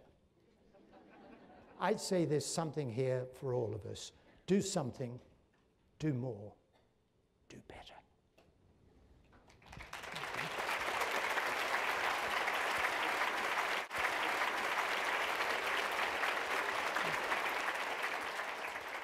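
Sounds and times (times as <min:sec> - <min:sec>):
audience applauding: 0:09.5 - 0:19.0.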